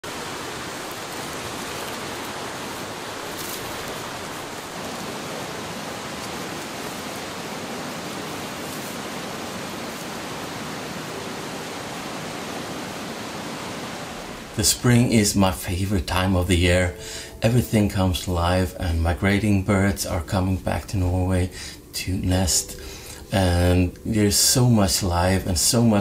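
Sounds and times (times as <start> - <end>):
fast-flowing water rushing: 0.0 - 15.6
footsteps in dry leaves: 0.4 - 10.4.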